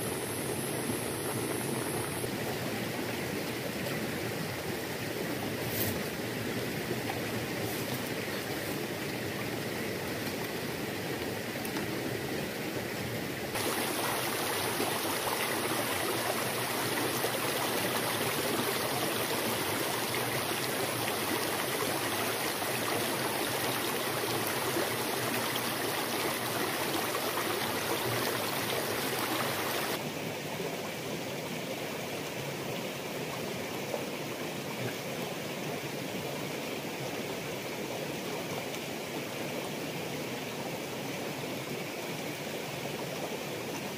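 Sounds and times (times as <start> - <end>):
river babbling over rocks: 6.2 - 33.6.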